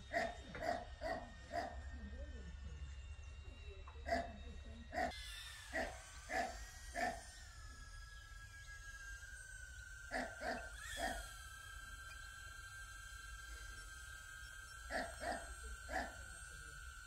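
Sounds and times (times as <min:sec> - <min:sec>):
faint high whine: 0:00.0 - 0:17.0
dog barking: 0:00.1 - 0:01.8, 0:04.1 - 0:05.1, 0:05.8 - 0:07.2, 0:10.1 - 0:11.2, 0:14.9 - 0:16.3.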